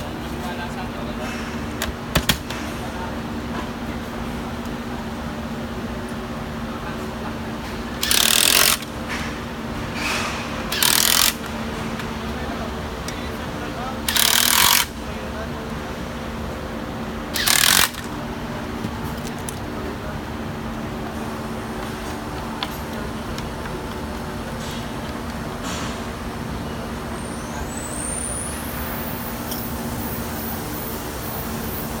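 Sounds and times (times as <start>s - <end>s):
factory hum: 0.0s - 32.0s
power screwdriver running: 8.0s - 8.9s, 10.7s - 11.5s, 14.1s - 14.9s, 17.4s - 18.1s.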